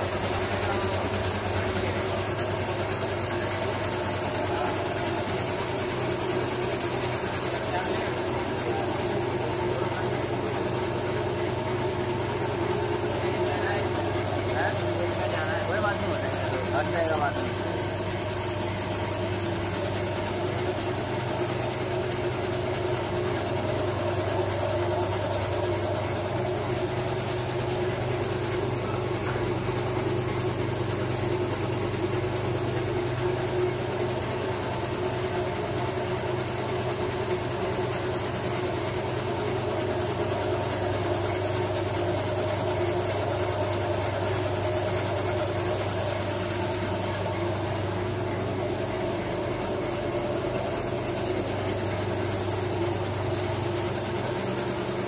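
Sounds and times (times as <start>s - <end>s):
machine motors humming: 0.0s - 34.6s.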